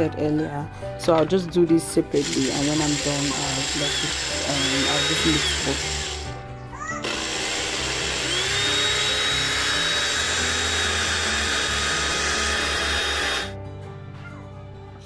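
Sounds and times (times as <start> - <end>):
blender motor whine: 2.2 - 6.4, 7.0 - 13.6.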